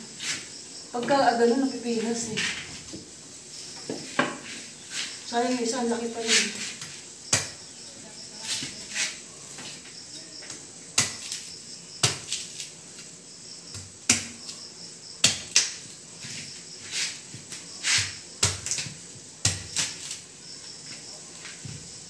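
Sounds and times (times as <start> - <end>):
machete chopping banana stalk: 7.3 - 7.6, 11.0 - 12.7, 13.8 - 14.6, 15.2 - 15.9, 17.9 - 20.2.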